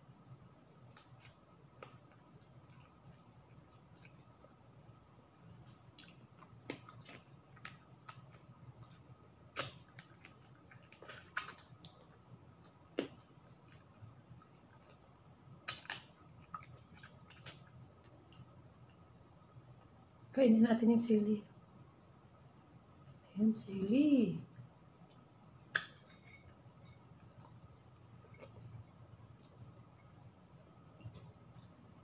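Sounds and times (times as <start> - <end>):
person chewing: 0.8 - 4.6, 5.6 - 18.5.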